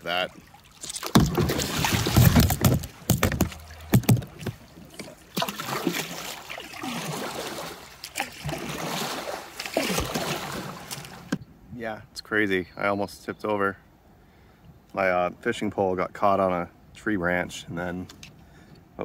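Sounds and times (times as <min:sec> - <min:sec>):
kayak paddle splashing: 0:00.1 - 0:11.4
water rushing in fast current: 0:00.8 - 0:11.3
heavy knocks and thumps: 0:01.1 - 0:04.6.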